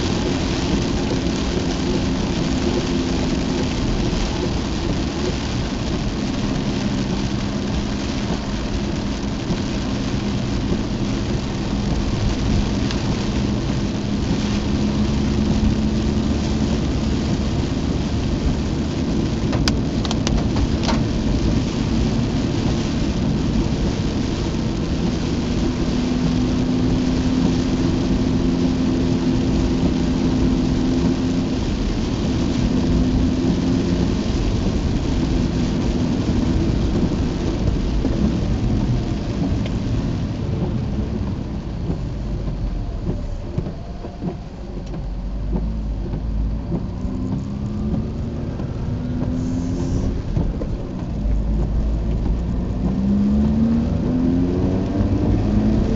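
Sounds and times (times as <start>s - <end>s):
car engine running: 0.0s - 55.9s
heavy rain on a car: 0.0s - 55.9s
tyres hissing through water: 45.6s - 52.0s.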